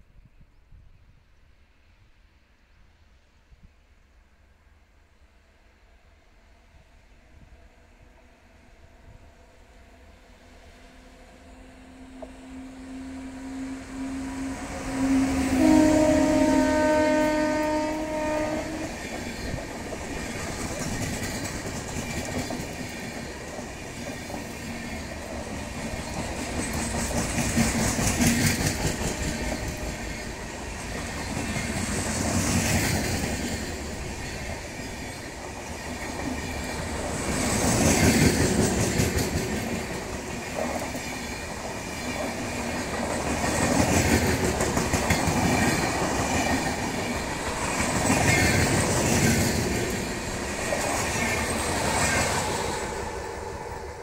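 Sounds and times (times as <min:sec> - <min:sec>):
train wheels clattering over rail joints: 0:18.9 - 0:52.8.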